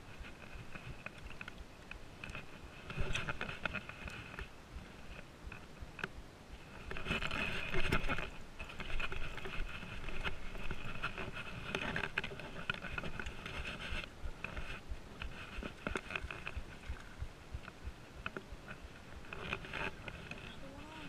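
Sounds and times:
water splashing and sloshing: 0:00.0 - 0:21.0
paddle stroking through water: 0:06.6 - 0:21.0.

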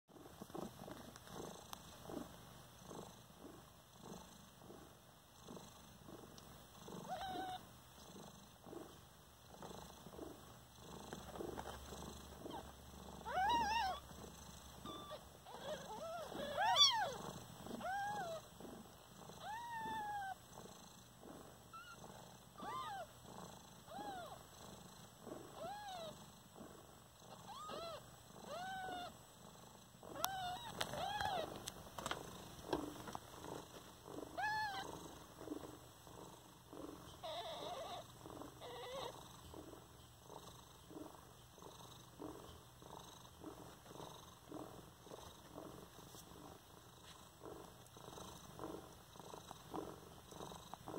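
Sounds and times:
cat purring: 0:00.1 - 0:50.9
kittens mewing: 0:12.4 - 0:14.1, 0:14.8 - 0:18.5, 0:19.4 - 0:20.4, 0:22.6 - 0:23.1, 0:27.4 - 0:29.2, 0:30.1 - 0:32.2, 0:34.4 - 0:34.9.

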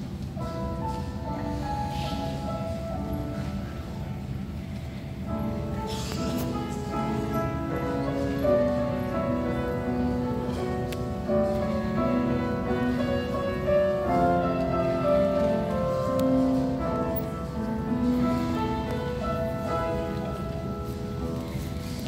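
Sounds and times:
grand piano playing: 0:00.0 - 0:22.0.

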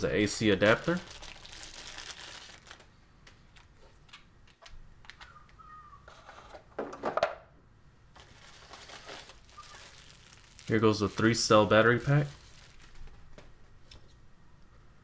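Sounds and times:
adapter cord rustling: 0:08.2 - 0:14.2.

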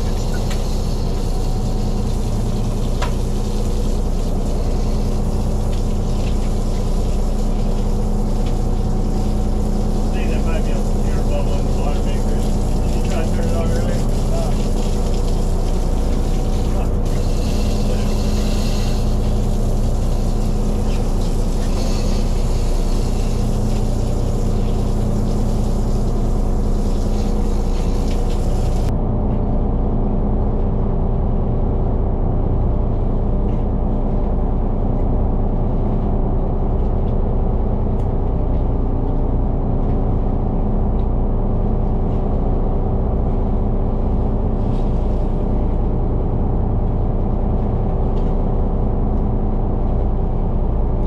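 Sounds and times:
boat engine droning: 0:00.0 - 0:51.0
high hiss: 0:12.1 - 0:28.9.

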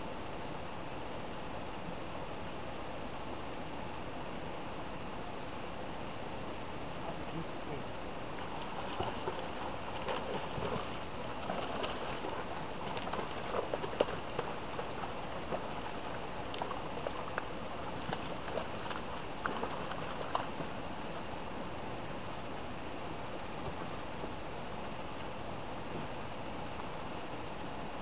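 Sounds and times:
river water rushing: 0:08.0 - 0:21.5
water splashes: 0:08.2 - 0:21.5.

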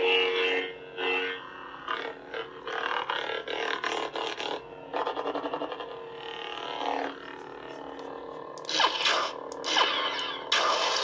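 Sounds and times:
lightsaber hum: 0:01.6 - 0:11.0
lightsaber swing sounds: 0:08.6 - 0:11.0.

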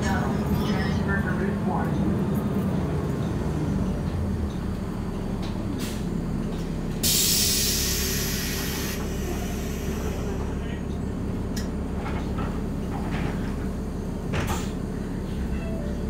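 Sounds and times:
bus engine humming: 0:00.0 - 0:16.0
compressed air hiss: 0:07.0 - 0:10.2.

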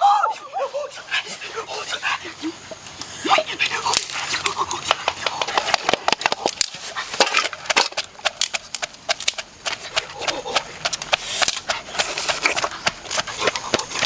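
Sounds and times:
dry twigs snapping: 0:03.9 - 0:11.7
pestle pounding in wooden mortar: 0:07.2 - 0:14.0.

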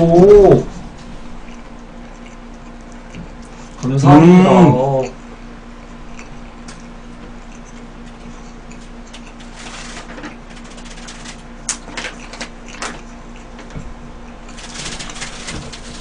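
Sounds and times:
faint steady hum: 0:00.0 - 0:16.0
paper wrapper crinkling: 0:09.4 - 0:12.5, 0:14.5 - 0:16.0.

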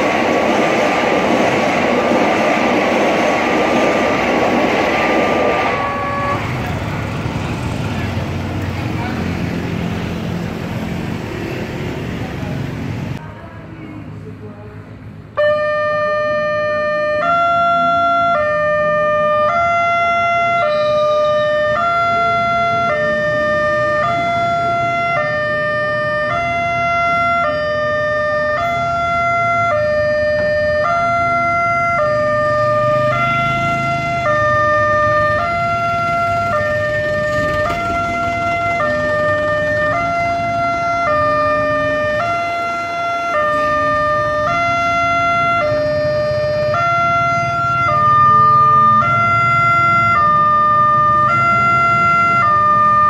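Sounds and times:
road traffic rumbling: 0:00.0 - 0:53.0
level crossing two-tone alarm: 0:05.1 - 0:06.5, 0:15.4 - 0:53.0.

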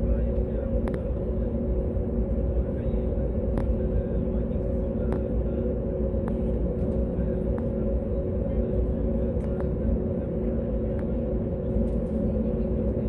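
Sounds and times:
jet engines idling: 0:00.0 - 0:13.0
faint clicks in cabin: 0:00.2 - 0:01.1, 0:03.5 - 0:03.8, 0:05.0 - 0:05.3, 0:09.3 - 0:09.8, 0:10.9 - 0:11.2.

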